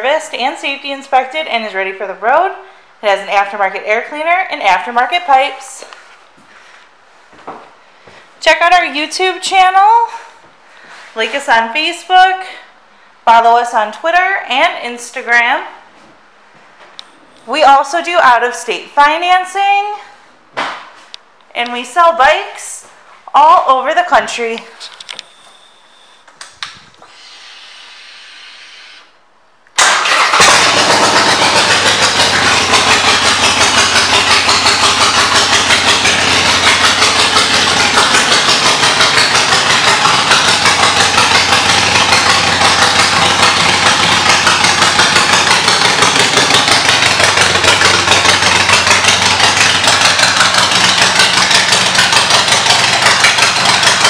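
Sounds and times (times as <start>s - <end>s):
motorcycle engine starting and running: 29.8s - 54.0s.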